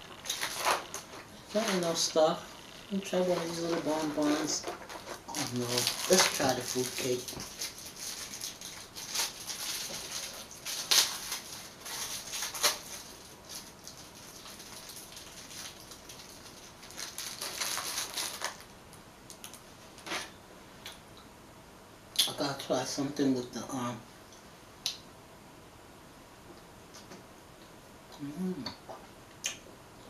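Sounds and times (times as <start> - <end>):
plastic wrapping crinkling: 0.0 - 18.7, 19.3 - 20.3.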